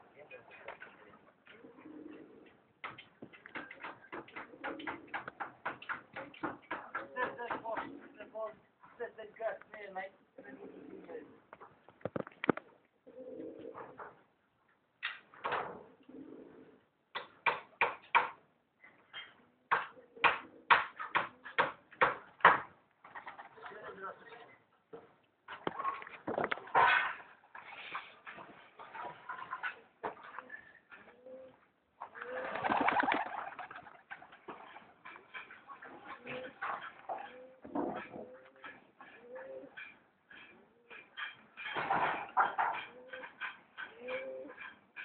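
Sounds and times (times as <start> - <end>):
pigeons cooing: 0.8 - 6.0, 10.4 - 11.5, 13.0 - 14.2, 15.9 - 16.9, 19.3 - 21.6, 28.8 - 41.2, 42.4 - 44.8.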